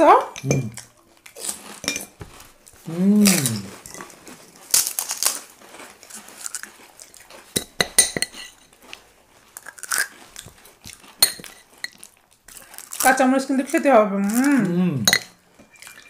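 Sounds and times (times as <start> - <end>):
spoon clinking against dish: 0.4 - 0.8, 7.6 - 8.6, 11.2 - 12.0, 15.0 - 16.0
crisp shells crunching: 0.7 - 7.6, 8.8 - 16.0.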